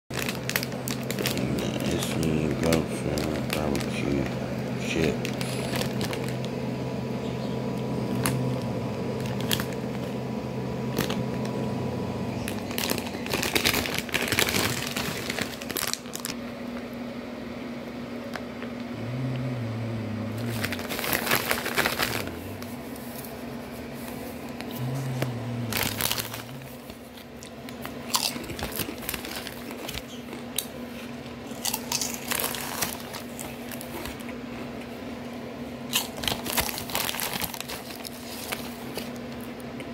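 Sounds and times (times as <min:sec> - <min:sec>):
hand rummaging among chips: 0:00.1 - 0:06.5, 0:12.4 - 0:16.3, 0:20.4 - 0:23.4, 0:24.1 - 0:30.2, 0:31.5 - 0:34.2, 0:36.0 - 0:39.2
chip bag crinkling: 0:00.1 - 0:06.6, 0:07.6 - 0:10.2, 0:10.8 - 0:16.4, 0:19.0 - 0:34.4, 0:35.9 - 0:39.6
steady low hum: 0:00.1 - 0:39.9.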